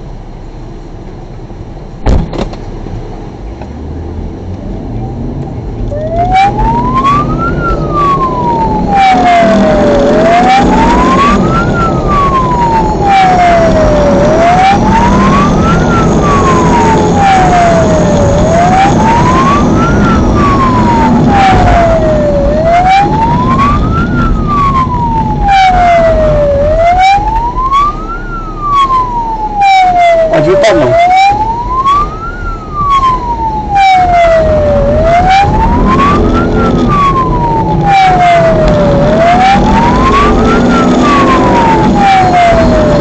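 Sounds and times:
car engine and road noise: 0.0 - 43.0
wailing siren: 4.6 - 43.0.

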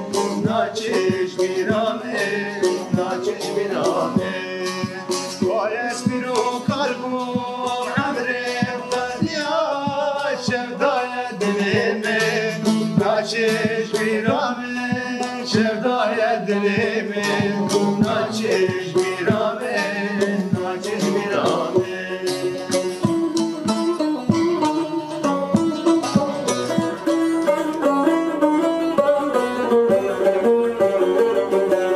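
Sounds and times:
man singing: 0.0 - 23.6, 31.5 - 31.9
plucked long-necked lutes: 0.0 - 31.9.

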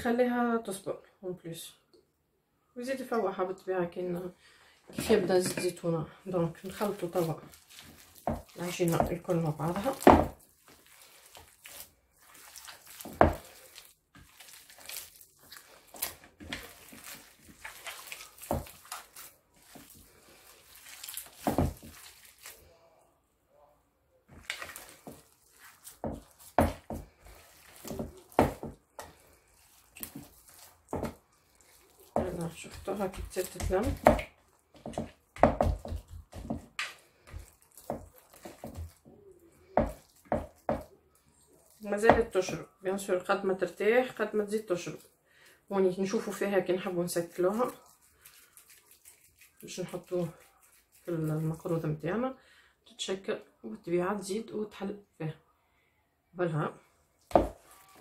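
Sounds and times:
hands kneading wet paste: 4.9 - 52.4, 57.0 - 58.0.

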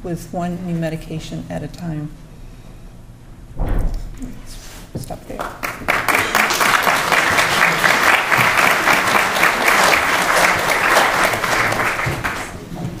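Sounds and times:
audience applauding: 5.4 - 13.0.

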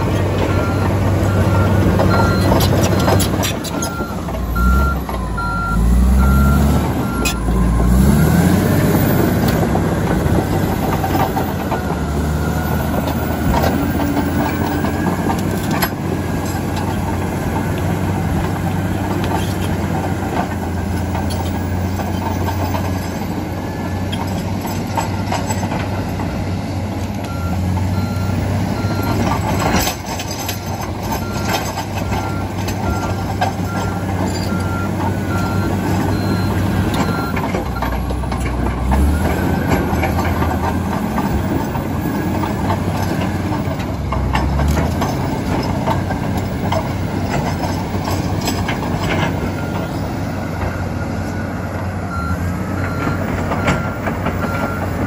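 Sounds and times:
dozer diesel engine running: 0.0 - 55.0
reversing alarm beeping: 0.4 - 9.6, 10.7 - 15.1, 27.3 - 30.0, 31.1 - 38.0, 48.2 - 55.0
steel tracks clanking on rock: 6.9 - 26.4, 28.8 - 50.8.

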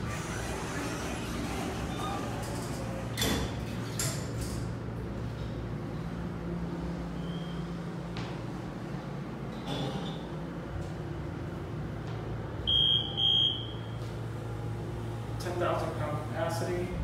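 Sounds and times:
elevator doors closing: 0.0 - 4.9
steady low hum: 0.0 - 17.0.

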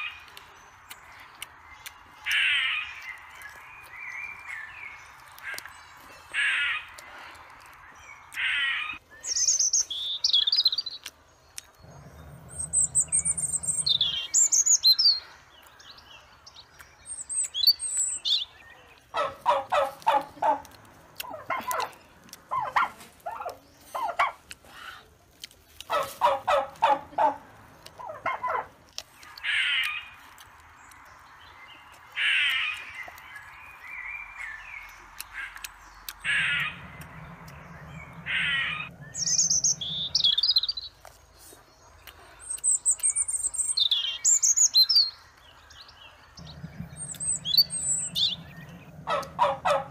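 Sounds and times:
high chirping birdsong: 0.0 - 24.6, 25.7 - 49.9
bird rapid repeated notes: 46.4 - 49.9.

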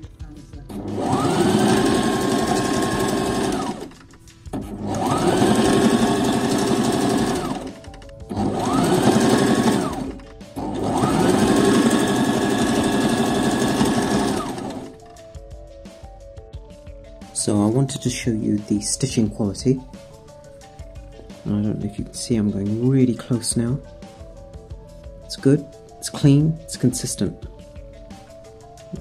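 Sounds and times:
electric sewing machine stitching: 0.7 - 15.1.

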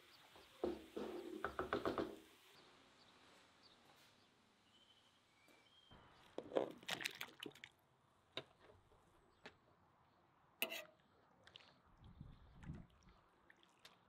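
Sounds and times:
utensil stirring in broth: 10.6 - 10.9.

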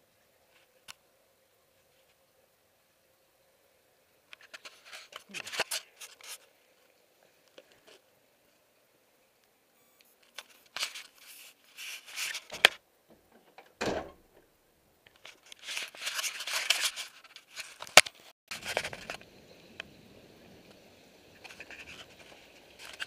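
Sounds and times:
dull thump: 13.1 - 14.4.

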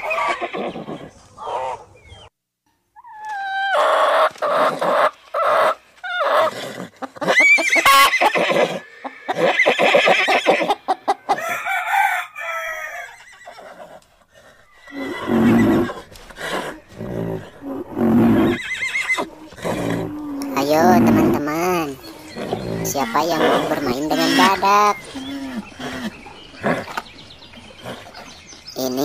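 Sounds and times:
hens clucking: 3.0 - 29.0
rooster crowing: 11.3 - 13.2
deep low animal sound: 14.4 - 18.6, 19.2 - 29.0.

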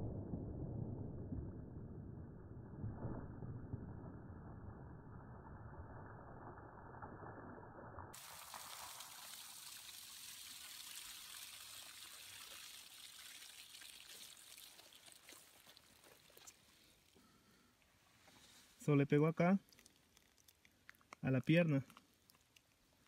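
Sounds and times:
water splashing from a jug: 8.1 - 17.3.

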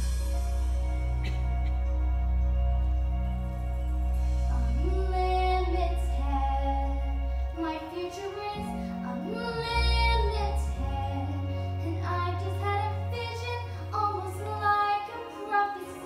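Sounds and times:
instrumental accompaniment with bass: 0.0 - 16.0
woman singing: 4.5 - 16.0.

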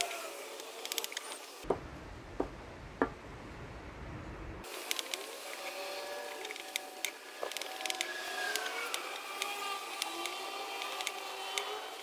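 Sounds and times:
low rumble: 1.7 - 4.7.

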